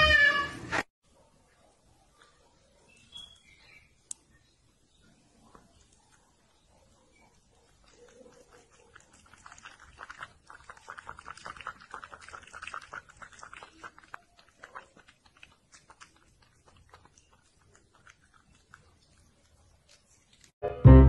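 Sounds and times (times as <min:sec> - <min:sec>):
kitten licking a cup: 0:07.7 - 0:20.5.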